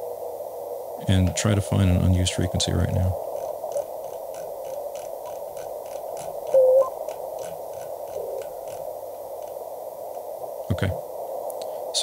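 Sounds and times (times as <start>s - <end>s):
radio band hiss: 0.0s - 4.0s, 9.0s - 12.0s
short morse tone: 6.6s - 6.9s.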